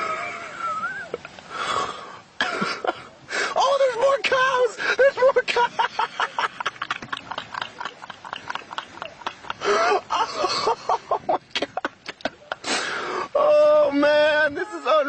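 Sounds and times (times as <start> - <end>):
man laughing hard: 4.8 - 12.6
man's drawn-out exclamation: 13.4 - 15.0.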